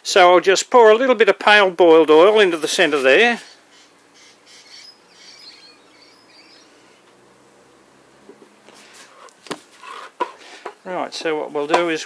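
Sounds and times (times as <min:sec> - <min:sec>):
faint bird chirps: 0:03.4 - 0:07.1.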